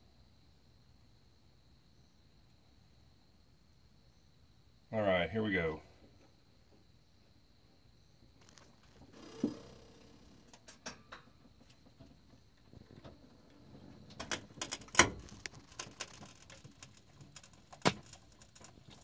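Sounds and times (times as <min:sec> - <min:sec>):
sharp clicks and knocks: 0:14.1 - 0:19.0.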